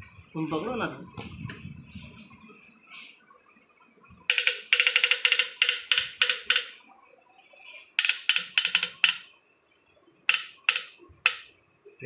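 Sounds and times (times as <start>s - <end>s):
ratchet wrench clicking: 4.3s - 6.8s, 8.0s - 9.3s, 10.3s - 11.5s.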